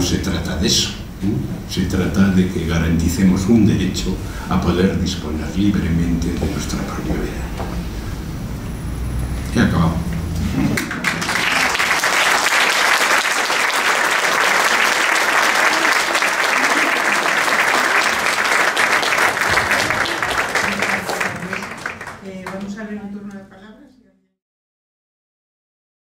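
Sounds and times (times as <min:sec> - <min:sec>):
audience applauding: 0:10.7 - 0:23.0.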